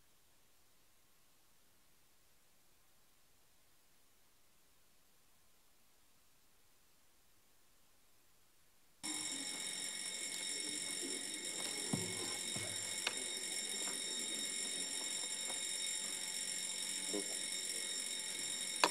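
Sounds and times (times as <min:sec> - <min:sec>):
alarm bell ringing: 0:09.0 - 0:18.9
faint knocks: 0:11.7 - 0:13.2.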